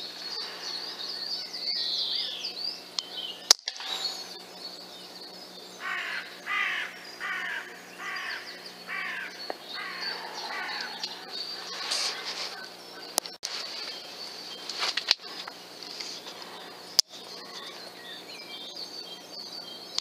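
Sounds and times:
songbirds singing: 0.0 - 20.0
crow cawing: 5.8 - 12.2.

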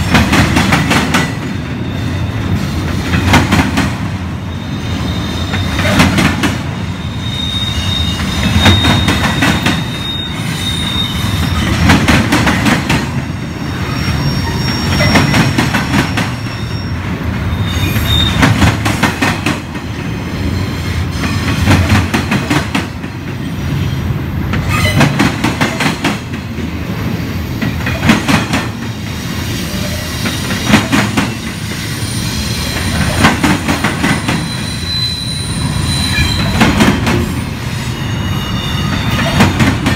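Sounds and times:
train wheels clacking over rail joints: 0.0 - 1.7, 2.8 - 4.1, 5.5 - 6.7, 8.2 - 10.0, 10.9 - 13.3, 14.6 - 16.5, 17.9 - 20.0, 21.2 - 23.4, 24.5 - 26.7, 27.6 - 31.8, 32.6 - 34.6, 36.2 - 37.4, 38.9 - 39.9
train rumble: 0.0 - 39.9
high wheel squeal: 1.8 - 2.7, 4.4 - 6.1, 6.8 - 11.9, 13.5 - 18.5, 20.0 - 21.6, 29.0 - 30.6, 31.5 - 33.2, 34.1 - 39.6.

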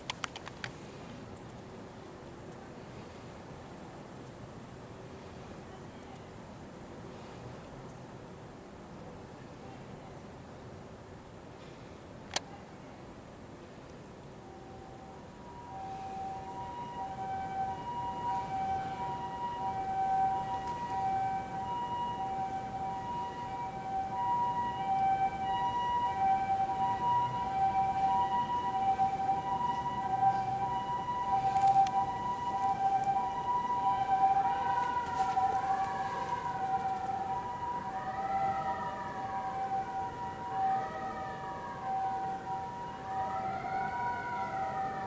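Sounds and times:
two-tone hi-lo siren: 14.4 - 45.0
wailing siren: 14.4 - 45.0.

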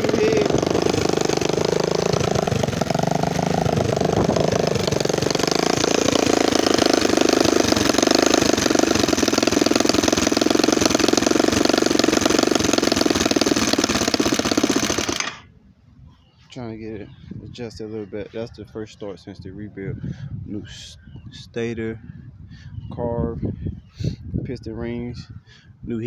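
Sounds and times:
dirtbike engine revving: 0.0 - 15.4.

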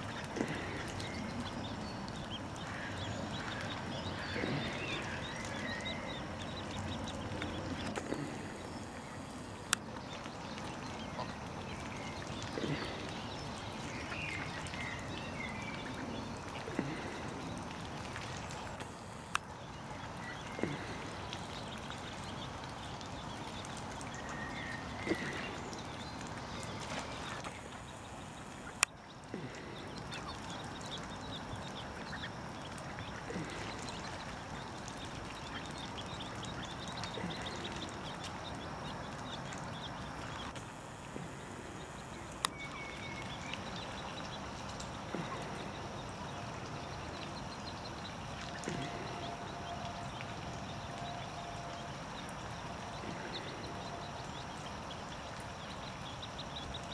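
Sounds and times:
ducklings peeping: 0.0 - 56.9
outdoor background noise: 0.0 - 56.9.

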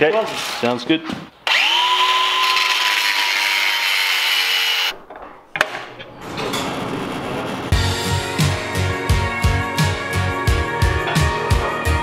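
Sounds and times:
angle grinder cutting steel: 1.5 - 5.0.

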